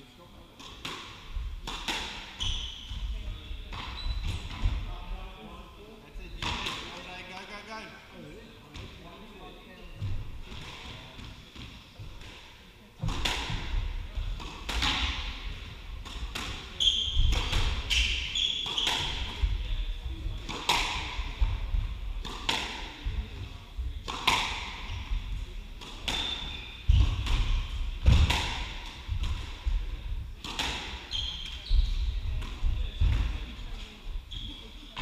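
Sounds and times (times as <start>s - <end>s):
squash ball cracks: 13.0s - 13.7s, 20.4s - 23.0s, 24.0s - 24.8s, 25.8s - 29.6s.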